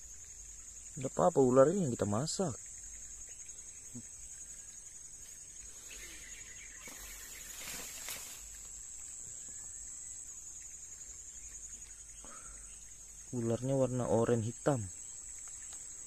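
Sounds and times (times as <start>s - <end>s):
insects chirring: 0.0s - 16.0s
rustle: 0.0s - 16.0s.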